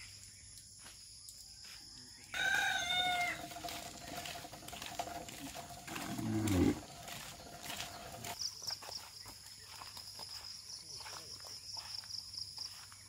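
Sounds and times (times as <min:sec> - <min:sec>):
footsteps on dirt path: 0:00.0 - 0:13.0
ox calling: 0:02.9 - 0:08.4.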